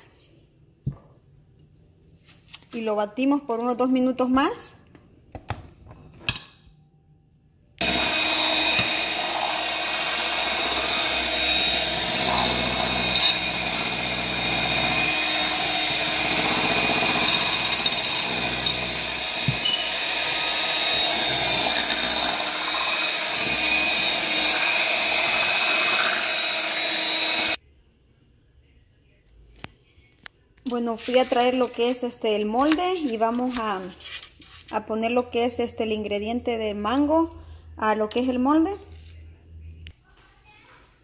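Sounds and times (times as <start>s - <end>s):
electric mixer running: 7.8s - 27.6s.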